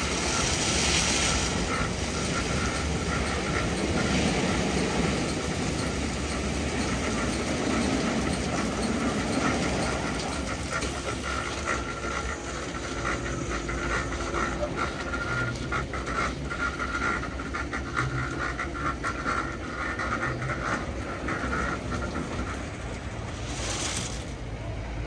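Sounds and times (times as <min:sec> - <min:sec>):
water spray: 0:00.0 - 0:02.8, 0:23.3 - 0:24.4
car wash brushes spinning: 0:00.0 - 0:24.9
machine drives whining: 0:00.0 - 0:25.0.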